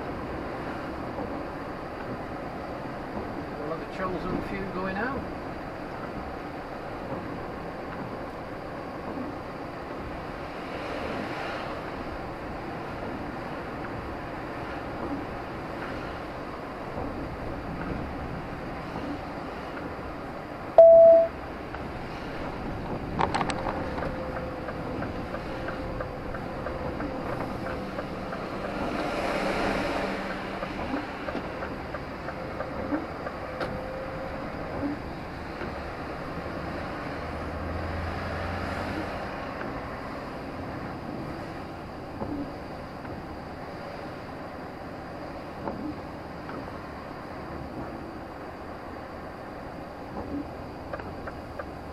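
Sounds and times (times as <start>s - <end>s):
vehicle road noise: 0.0s - 51.9s
loud single-pitch beep: 20.8s - 21.4s.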